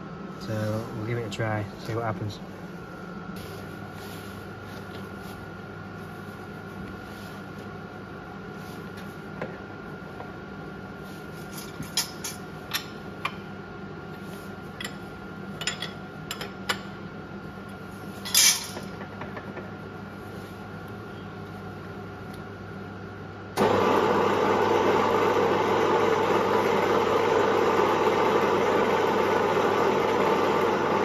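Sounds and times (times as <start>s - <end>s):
workshop hum: 0.0s - 31.0s.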